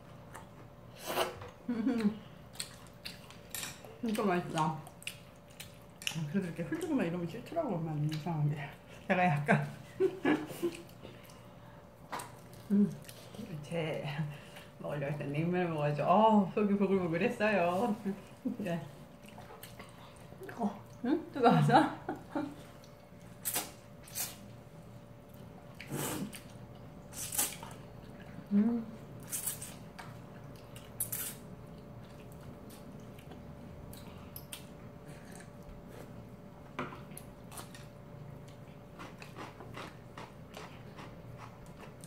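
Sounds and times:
faint steady hum: 0.0s - 42.0s
chewing with small clicks: 2.0s - 7.0s, 10.7s - 11.5s, 29.9s - 35.8s, 36.9s - 42.0s.

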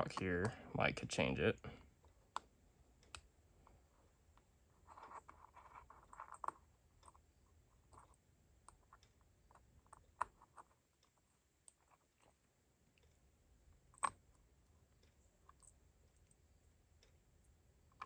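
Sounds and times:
small parts scraping: 4.7s - 12.5s.

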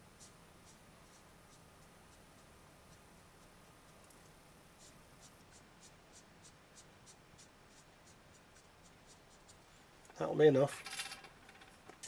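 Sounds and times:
marker pen scratching on card: 0.1s - 9.6s.

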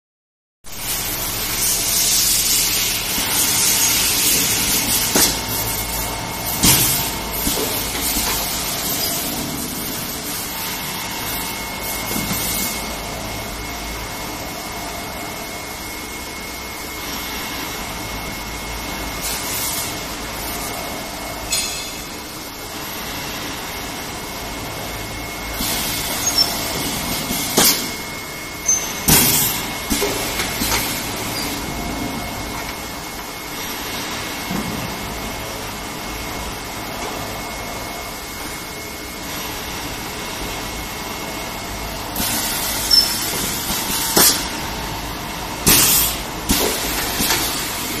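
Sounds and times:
pneumatic cylinders knocking: 1.6s - 10.4s, 25.5s - 32.8s, 42.2s - 44.6s, 45.6s - 47.9s.

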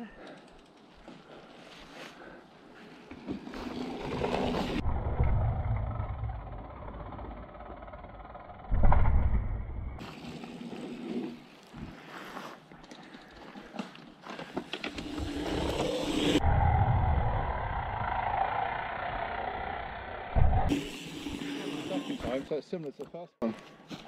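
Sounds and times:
bike tyres on dirt trail: 0.3s - 5.0s, 10.0s - 16.4s.

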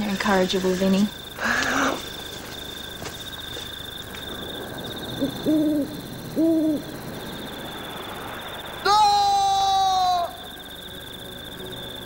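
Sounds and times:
owl hooting: 5.1s - 7.0s.

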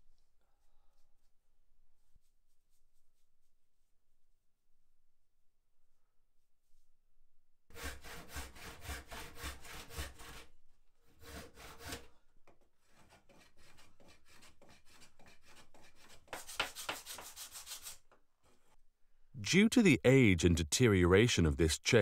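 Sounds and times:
hand tool rubbing wood: 12.9s - 18.0s.

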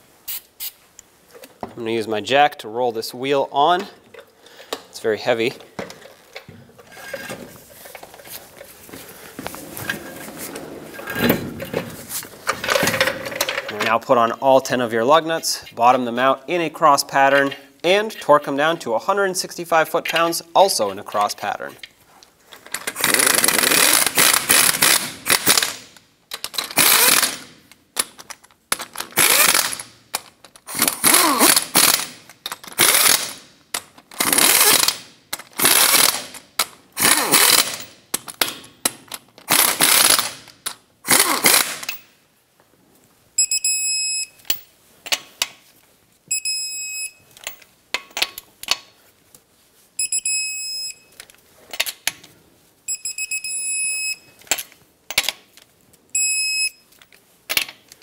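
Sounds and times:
impact wrench bursts: 22.8s - 25.9s, 26.6s - 27.6s, 29.1s - 30.0s, 30.6s - 33.5s, 34.1s - 36.4s, 37.0s - 38.0s, 39.5s - 40.5s, 41.1s - 42.0s.

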